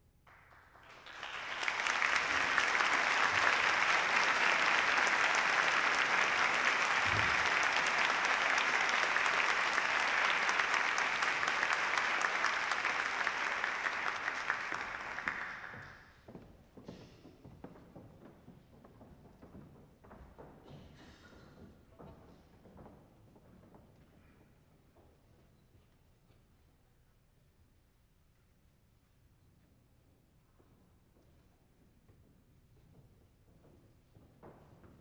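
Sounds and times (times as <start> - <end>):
audience applauding: 0.3 - 16.1.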